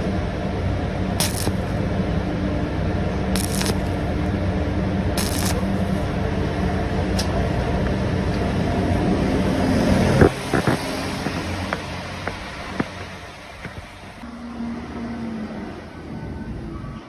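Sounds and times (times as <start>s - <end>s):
low hum: 0.0s - 15.5s
hot weld ticking: 1.2s - 1.8s, 3.4s - 4.0s, 5.2s - 6.0s
welding arc crackling hiss: 1.2s - 1.8s, 3.4s - 4.1s, 5.2s - 6.0s.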